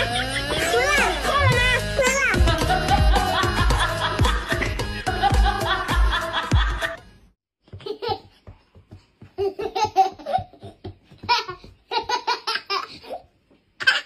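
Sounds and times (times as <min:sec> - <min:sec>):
background music: 0:00.0 - 0:07.3
toddler giggling: 0:07.7 - 0:08.5, 0:09.3 - 0:14.0.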